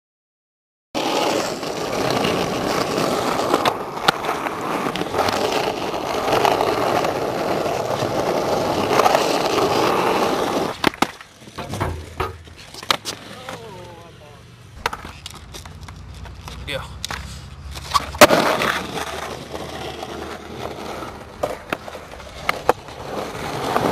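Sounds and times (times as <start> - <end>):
skateboard clacking on concrete: 1.0 - 14.0, 14.8 - 23.9
skateboard wheels rolling on concrete: 1.0 - 23.9.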